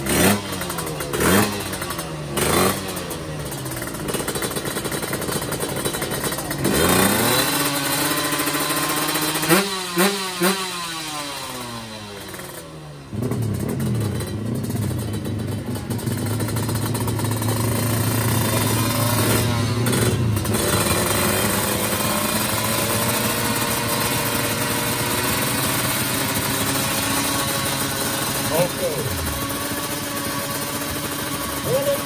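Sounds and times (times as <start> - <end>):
loud engine running wavering pitch: 15.8 - 32.0.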